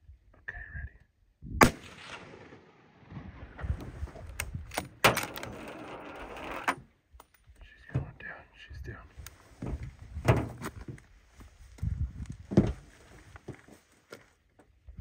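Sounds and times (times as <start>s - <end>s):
rifle shot echoing: 1.6s - 3.9s.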